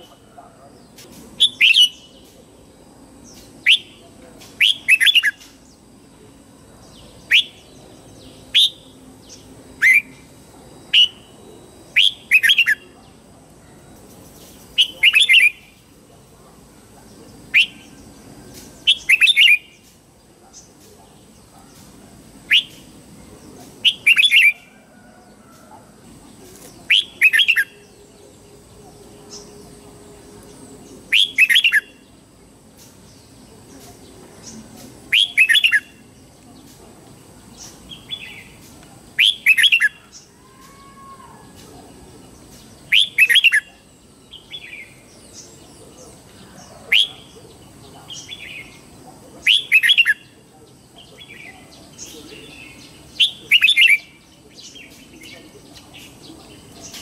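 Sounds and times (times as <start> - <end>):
bird singing whistled phrases: 1.4 - 2.1, 3.6 - 4.0, 4.6 - 5.4, 7.3 - 7.7, 8.5 - 8.8, 10.9 - 11.3, 17.6 - 18.0, 18.8 - 19.8, 22.5 - 22.8, 26.9 - 27.8, 31.1 - 32.0, 35.1 - 36.0, 39.2 - 40.6, 42.9 - 43.7.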